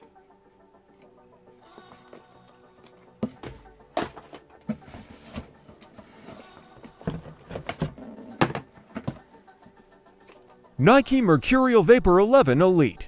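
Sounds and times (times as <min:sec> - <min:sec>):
boots and cardboard box handling: 0:03.2 - 0:09.2.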